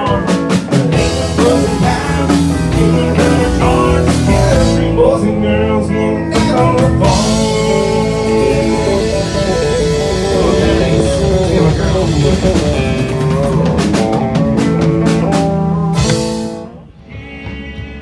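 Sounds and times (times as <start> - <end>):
person singing: 0.0 - 14.4
guitar accompaniment: 0.0 - 18.0.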